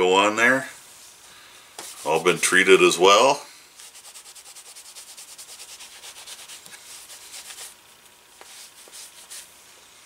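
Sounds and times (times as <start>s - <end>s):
cloth rubbing on leather: 3.8s - 9.6s.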